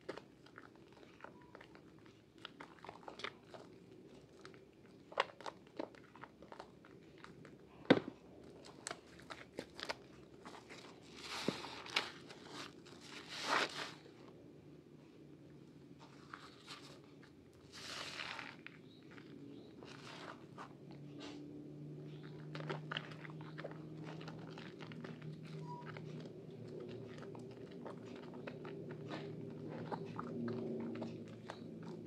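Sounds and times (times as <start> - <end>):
soap lather squelching: 22.1 - 32.0.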